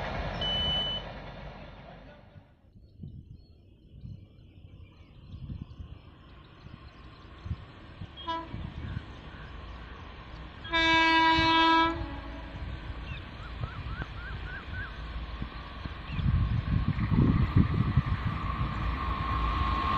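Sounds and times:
low steady train rumble: 0.0s - 19.9s
train horn blast: 8.2s - 8.8s, 10.6s - 12.8s.

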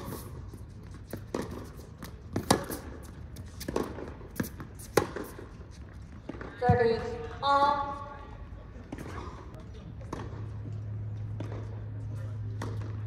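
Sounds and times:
tennis ball bouncing: 0.0s - 7.2s, 10.0s - 11.8s, 12.4s - 13.0s
racket striking tennis ball: 1.0s - 5.5s, 12.5s - 13.0s.

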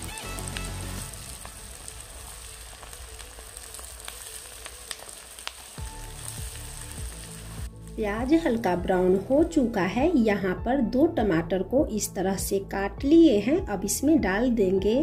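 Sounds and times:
onions sizzling in oil: 0.0s - 9.9s.

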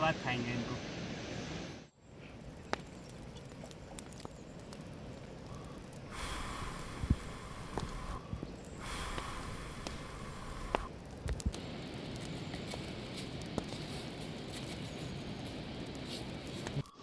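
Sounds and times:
fire crackling: 0.0s - 17.0s
person blowing into fire: 5.4s - 11.5s.

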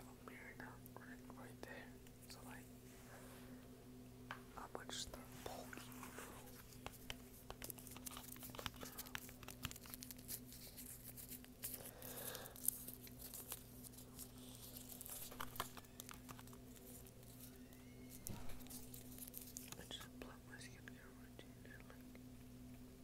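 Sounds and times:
faint electrical hum: 0.0s - 23.0s
crinkling and crackling objects: 5.1s - 20.1s.

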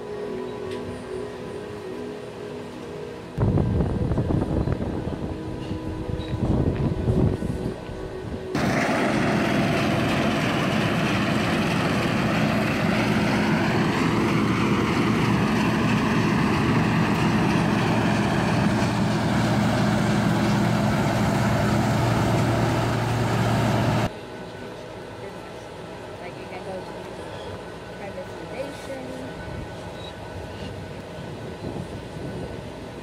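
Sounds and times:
machine whine: 0.0s - 25.6s
diesel engine drone: 0.0s - 33.0s.

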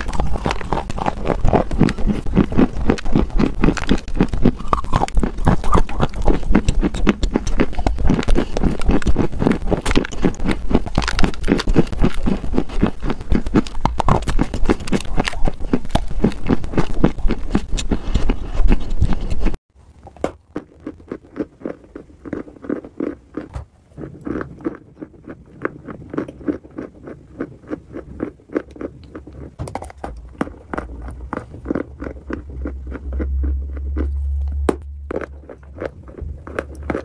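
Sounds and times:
close-miked crunchy chewing: 0.0s - 37.0s.

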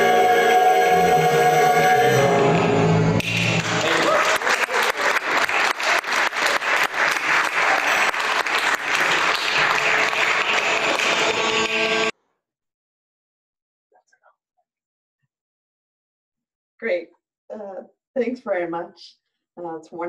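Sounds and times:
choir chord: 0.0s - 3.2s
applause: 3.2s - 12.1s.

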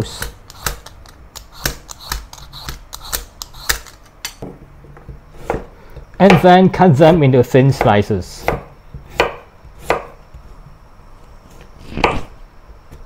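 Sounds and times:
peeler scraping sweet potato: 0.0s - 4.0s.

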